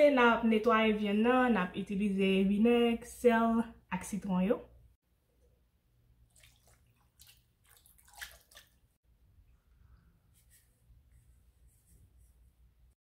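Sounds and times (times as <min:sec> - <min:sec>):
liquid splashing and dripping: 0:06.2 - 0:09.0.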